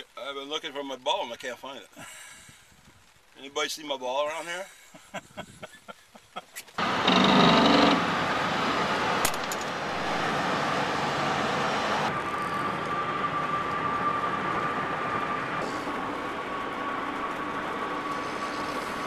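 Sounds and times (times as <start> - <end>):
vehicle road noise: 6.7 - 19.0.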